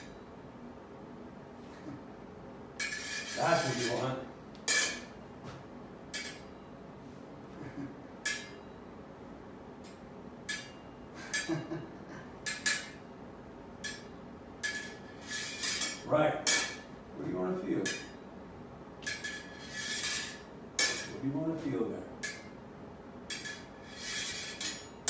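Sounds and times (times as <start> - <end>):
sword blades clinking and scraping: 2.8 - 5.1, 6.2 - 6.5, 13.8 - 16.9, 19.0 - 21.2, 23.3 - 25.0.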